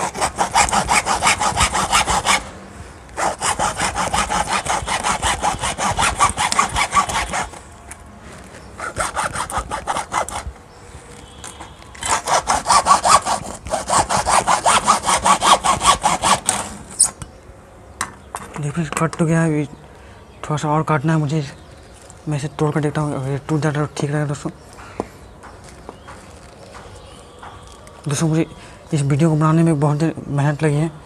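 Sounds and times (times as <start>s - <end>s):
hacksaw cutting plastic: 0.0s - 2.5s, 3.2s - 7.6s, 8.8s - 10.5s, 11.5s - 17.2s.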